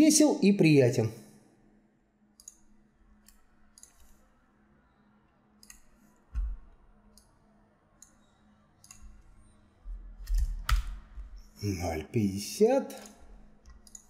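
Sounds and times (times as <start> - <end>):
computer mouse clicking: 2.4 - 4.3, 5.6 - 7.4, 8.0 - 9.2, 13.0 - 14.0.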